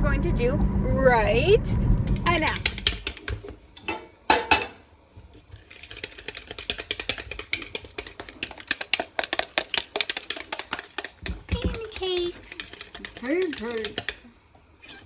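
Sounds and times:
whisk clicking against plastic bowl: 0:05.9 - 0:14.2.

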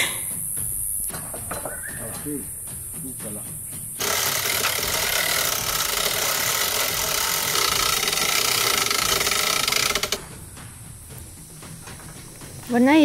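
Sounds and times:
sawmill blade cutting log: 0:04.0 - 0:10.2.

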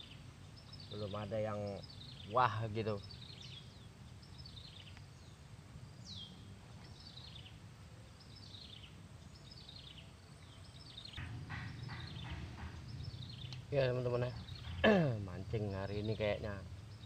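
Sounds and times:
faint birdsong: 0:00.0 - 0:17.0
low background rumble: 0:11.0 - 0:17.0.

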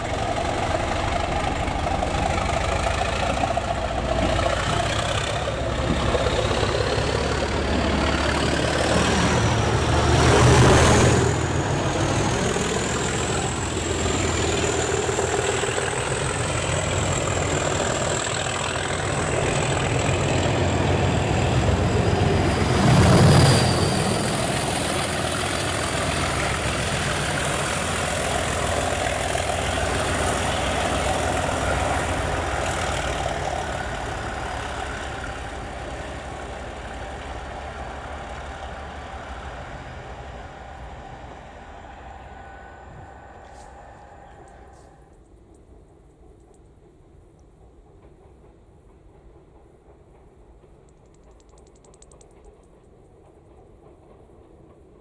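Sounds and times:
diesel locomotive engine working: 0:00.0 - 0:55.0
rush of passing train: 0:00.0 - 0:55.0
high whistling note: 0:41.2 - 0:45.1.

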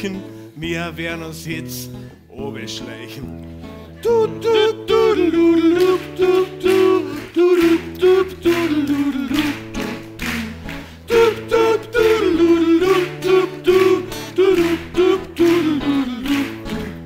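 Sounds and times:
strummed acoustic guitars: 0:00.0 - 0:17.0
voices singing: 0:04.0 - 0:10.5, 0:11.1 - 0:16.9.

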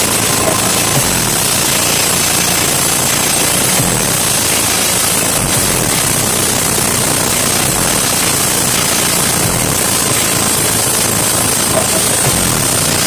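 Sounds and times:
deep bass pulses: 0:00.0 - 0:13.0
distorted subwoofer bass rumble: 0:00.0 - 0:13.0.

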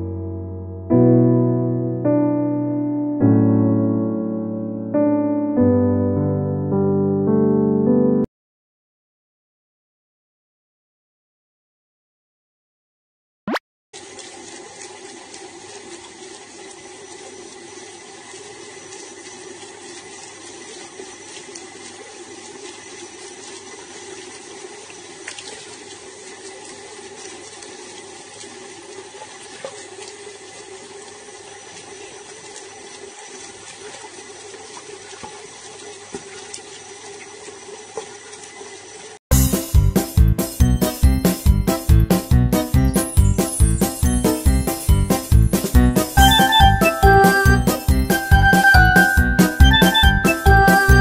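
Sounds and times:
tap water running into sink: 0:14.0 - 0:39.2.

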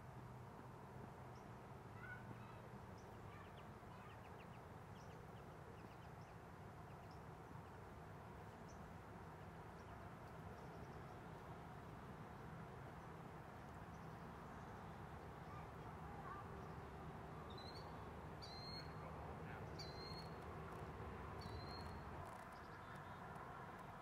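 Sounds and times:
distant birds chirping: 0:17.5 - 0:20.4.

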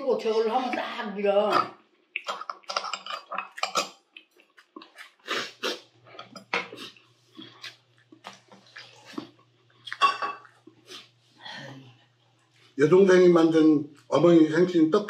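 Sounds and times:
wet slurping and chewing: 0:01.6 - 0:11.2.

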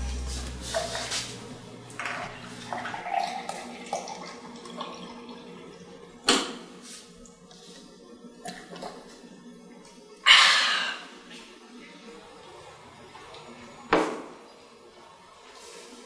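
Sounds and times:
water pouring into a glass: 0:02.0 - 0:06.0.

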